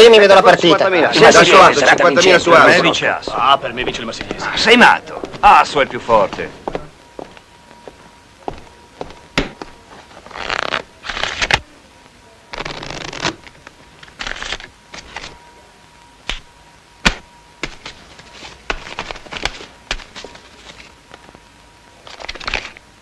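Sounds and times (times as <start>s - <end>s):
playing cards riffle shuffling: 10.2s - 11.6s, 12.5s - 15.4s, 17.6s - 20.9s, 22.0s - 22.8s.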